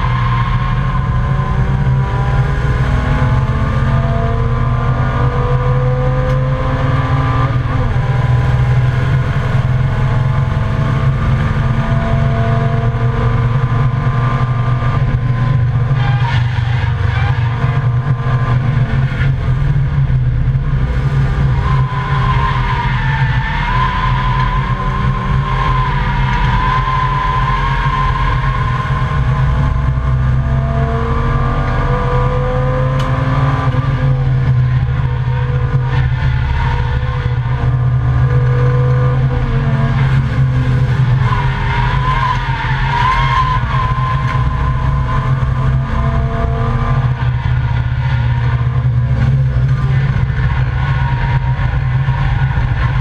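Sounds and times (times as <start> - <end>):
race car engine drone: 0.0 - 53.0
road and wind noise: 0.0 - 53.0.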